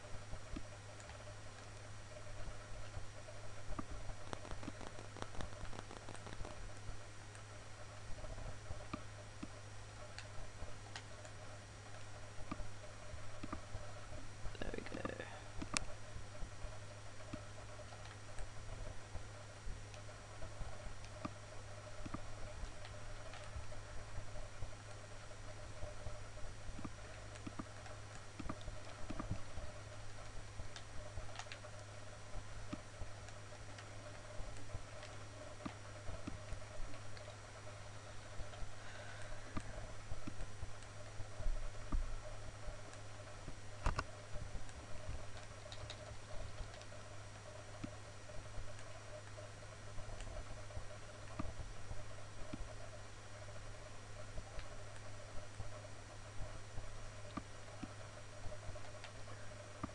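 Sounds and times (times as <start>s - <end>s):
low electrical hum: 0.0s - 59.9s
computer mouse clicking: 0.4s - 3.0s, 3.7s - 7.5s, 8.8s - 13.9s, 14.9s - 15.9s, 17.2s - 18.8s, 19.9s - 23.7s, 26.8s - 32.0s, 32.7s - 37.4s, 39.5s - 48.0s, 48.6s - 51.6s, 57.2s - 59.9s.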